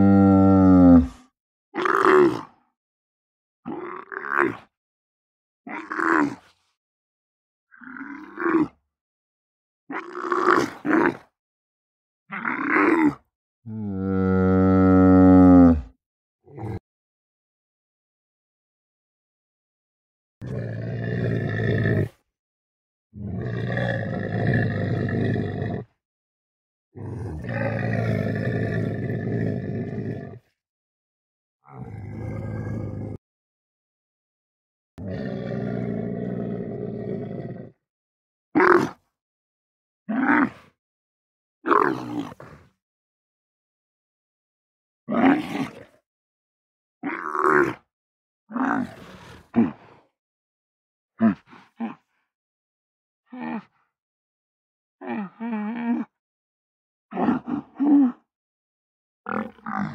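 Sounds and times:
camel grunting: 0.0 - 1.2, 13.7 - 15.9, 27.0 - 30.1, 48.5 - 49.8, 59.3 - 59.9.

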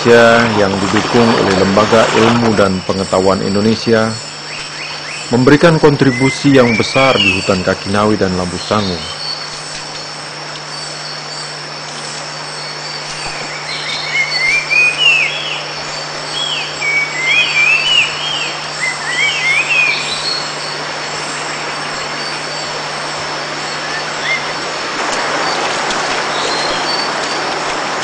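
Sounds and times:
insects droning: 0.0 - 28.0
low steady hum: 0.0 - 28.0
bird whistling: 6.1 - 7.6, 12.6 - 20.8, 23.7 - 24.6.

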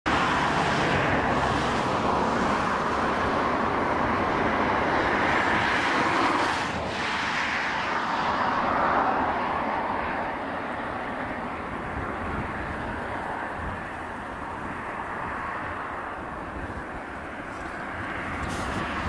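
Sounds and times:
jet engines rushing: 0.1 - 19.0.

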